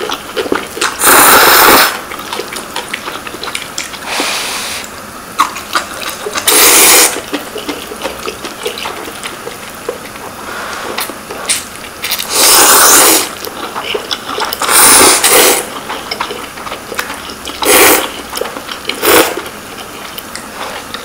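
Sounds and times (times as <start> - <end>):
people slurping noodles: 0.0 - 3.1, 5.7 - 9.4, 10.2 - 20.0.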